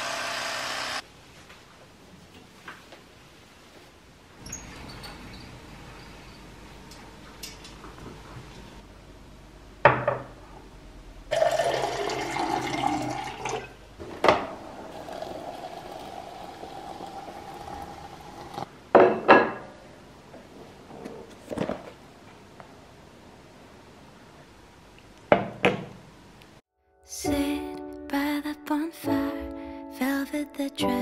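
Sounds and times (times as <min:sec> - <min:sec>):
water pouring: 0:11.3 - 0:13.8, 0:14.6 - 0:18.7
steady kettle note: 0:14.5 - 0:18.6.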